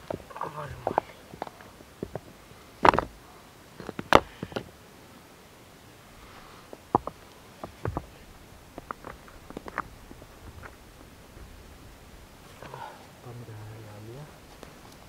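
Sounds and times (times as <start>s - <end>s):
stones knocking together: 0.0s - 3.2s, 3.8s - 4.7s, 6.7s - 10.8s.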